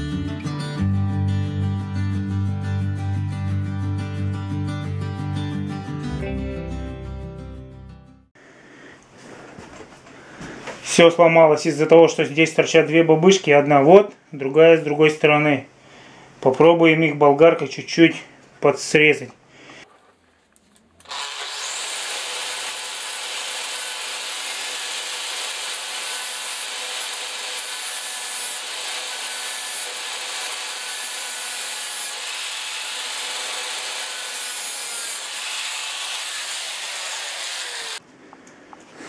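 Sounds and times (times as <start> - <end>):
angle grinder grinding: 20.1 - 38.0.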